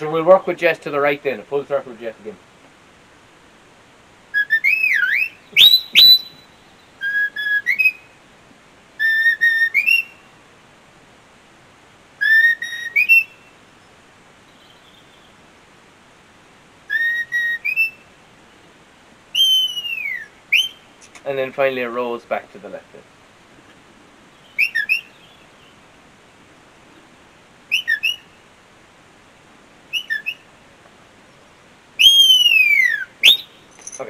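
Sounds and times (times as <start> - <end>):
shepherd's whistle commands: 4.4 - 8.0, 9.0 - 10.1, 12.2 - 13.3, 19.4 - 20.8, 32.0 - 33.6.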